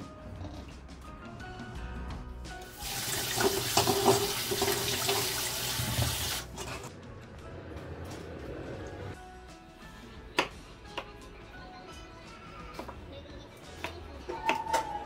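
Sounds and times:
tap water running into metal bowl: 2.7 - 6.5.

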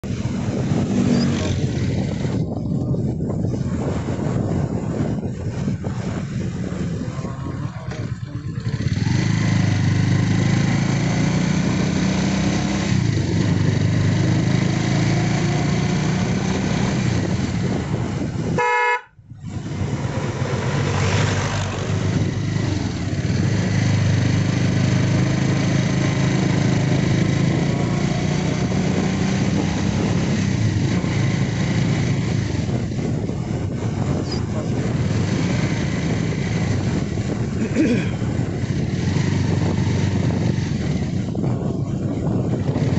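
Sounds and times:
motorcycle engine running: 0.0 - 42.9
wind rushing over microphone: 0.0 - 42.9
horn honk: 18.5 - 19.2.

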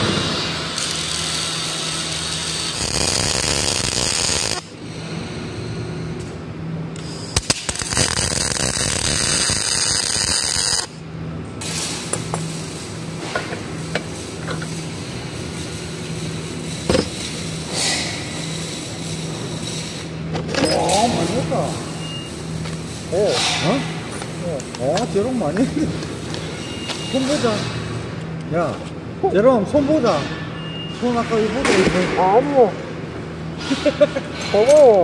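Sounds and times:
welding arc crackling and buzzing: 0.0 - 20.2, 20.8 - 28.2.

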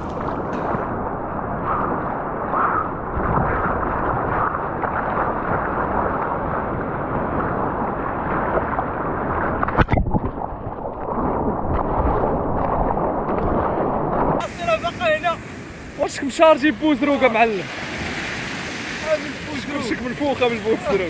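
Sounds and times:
sea surf rushing: 0.0 - 9.9, 11.2 - 21.0
wind on the microphone: 0.0 - 16.0.

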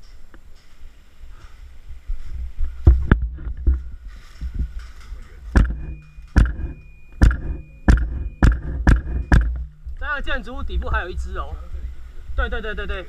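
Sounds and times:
airsoft rifle shots: 5.5 - 9.9.

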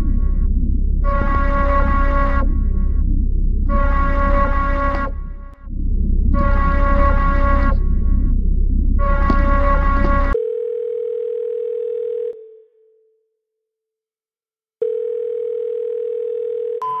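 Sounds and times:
low rumble: 0.0 - 10.4
steady telephone tone: 10.3 - 13.2, 14.8 - 17.0
telephone buzzing rings: 10.4 - 12.8, 14.8 - 17.0.

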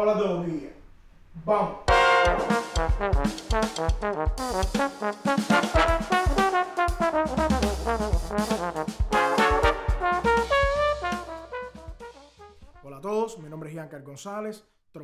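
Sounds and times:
trombone playing: 1.9 - 12.9.

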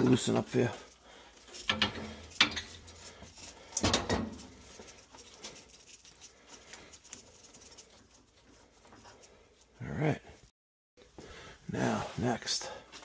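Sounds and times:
metal pipe clinks and scrapes: 1.4 - 6.3.

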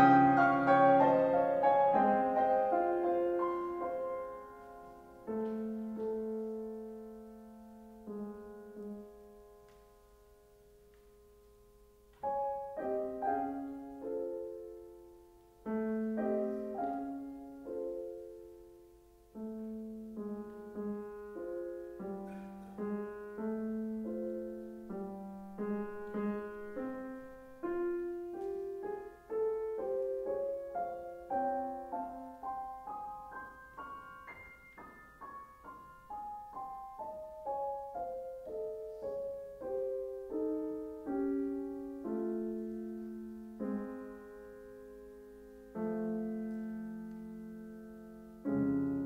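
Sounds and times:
solo grand piano: 0.0 - 49.0.

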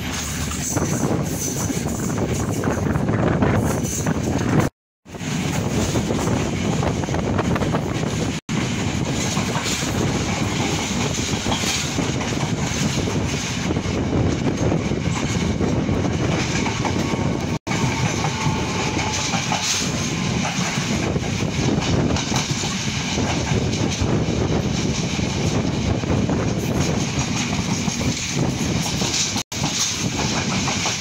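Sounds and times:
train wheels clattering on rails: 0.0 - 31.0.

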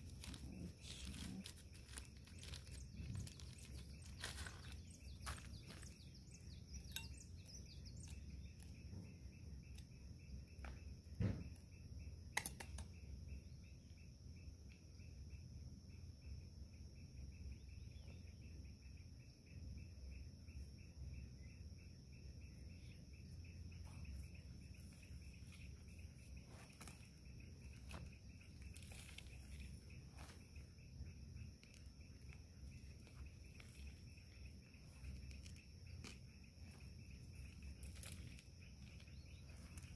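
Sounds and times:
hands working soil in pot: 0.0 - 9.0, 23.8 - 39.9
insects chirring: 0.0 - 39.9.

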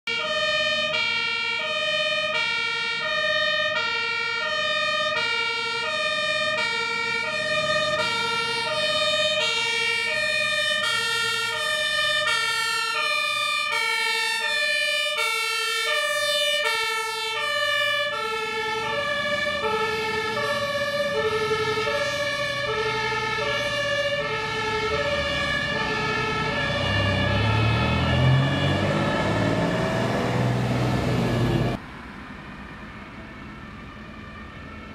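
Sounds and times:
two-tone fire engine siren: 0.0 - 34.9
vehicle engine rumbling: 17.4 - 34.9.

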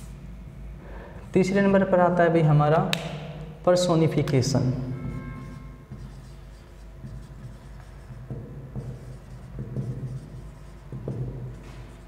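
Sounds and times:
marker writing on whiteboard: 5.0 - 12.0.

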